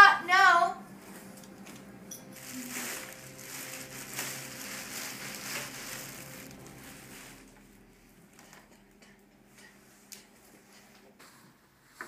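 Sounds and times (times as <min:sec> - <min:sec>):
dogs rustling on a rug: 0:01.0 - 0:07.6.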